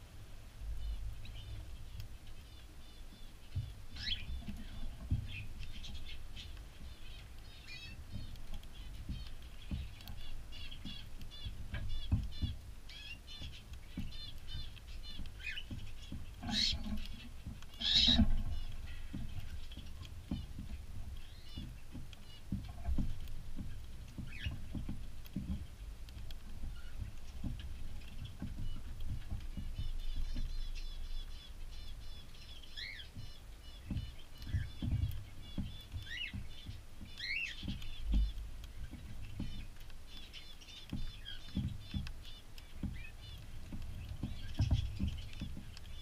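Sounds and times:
cockatiels chirping: 0:00.8 - 0:25.5, 0:27.9 - 0:46.0
low knocks and bumps: 0:13.4 - 0:32.4, 0:33.0 - 0:40.2, 0:40.8 - 0:46.0.

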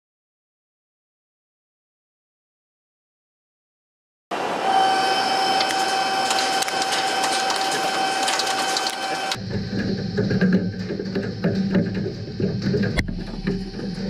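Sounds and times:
lathe cutting metal whine: 0:04.3 - 0:09.4.

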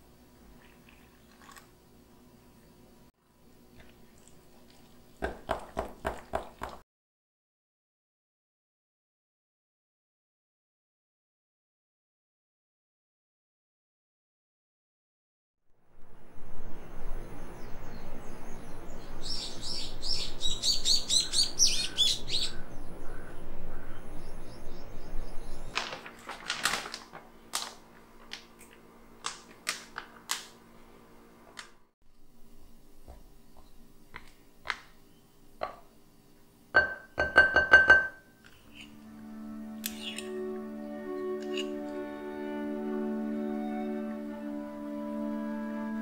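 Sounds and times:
birds chirping: 0:17.3 - 0:25.8.

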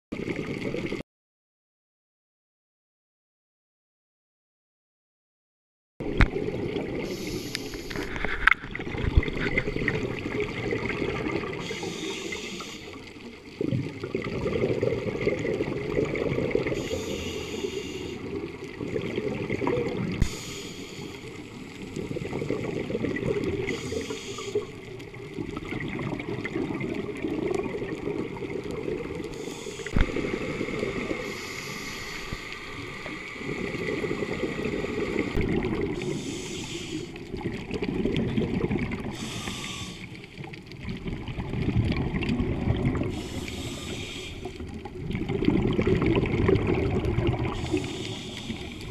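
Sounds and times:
gurgling exhaled bubbles: 0:00.1 - 0:01.0, 0:06.0 - 0:48.9
diver breathing through regulator: 0:07.0 - 0:08.6, 0:11.5 - 0:13.1, 0:16.7 - 0:18.3, 0:20.2 - 0:22.3, 0:23.6 - 0:24.8, 0:29.3 - 0:37.2, 0:39.1 - 0:40.4, 0:43.0 - 0:44.7, 0:47.4 - 0:48.9.

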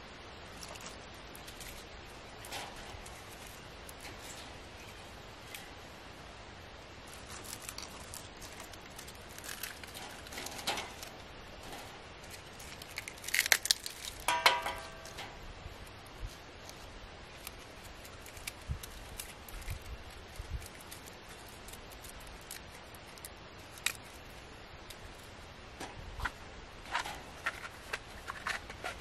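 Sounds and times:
kindling cracking and rustling: 0:00.3 - 0:29.0
sharp knocks on metal: 0:14.3 - 0:15.2.

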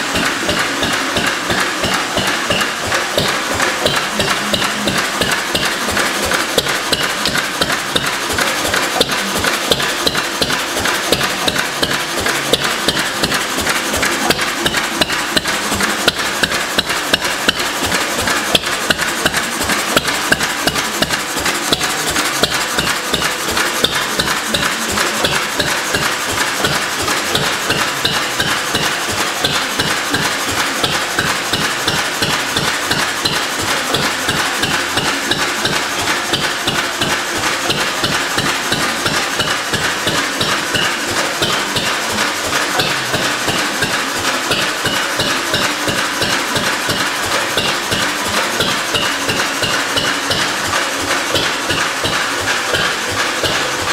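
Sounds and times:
stationary engine knocking: 0:00.0 - 0:53.9.

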